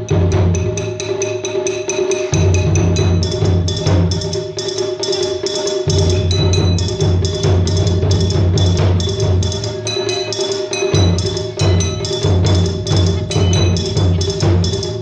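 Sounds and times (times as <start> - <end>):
deep drum: 5.8 - 10.0, 10.9 - 15.0.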